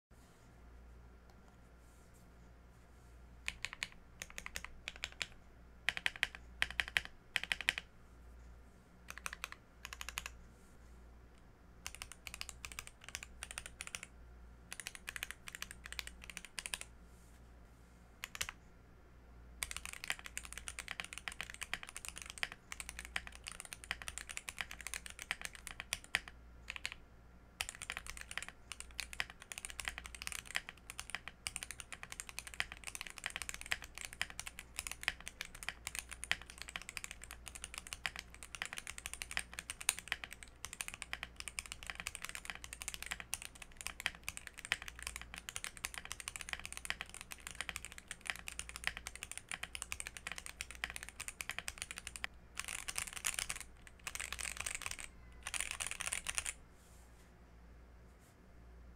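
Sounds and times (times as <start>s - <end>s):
mechanical keyboard typing: 3.4s - 7.9s, 9.1s - 10.4s, 11.8s - 14.1s, 14.7s - 16.9s, 18.2s - 18.6s, 19.6s - 27.0s, 27.6s - 56.6s.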